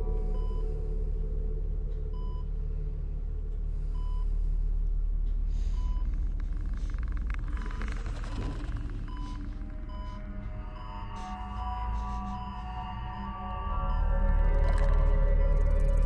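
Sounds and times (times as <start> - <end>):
low ominous rumble: 0.0 - 16.0
patient monitor beeping: 9.0 - 16.0.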